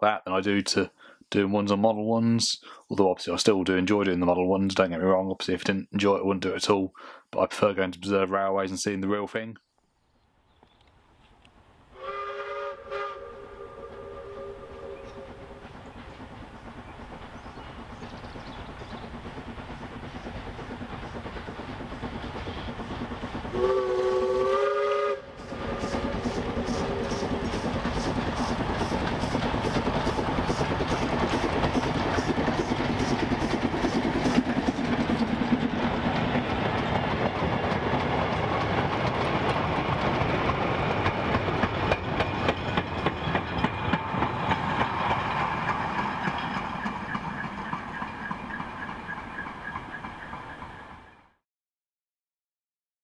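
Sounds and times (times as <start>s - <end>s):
steam locomotive exhaust beating: 11.9s - 51.1s
train wheels clickety-clack: 14.9s - 51.2s.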